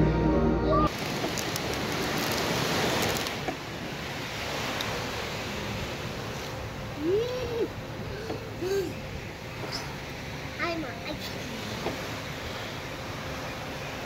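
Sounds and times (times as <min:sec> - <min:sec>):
waves breaking on beach: 0:00.9 - 0:14.0.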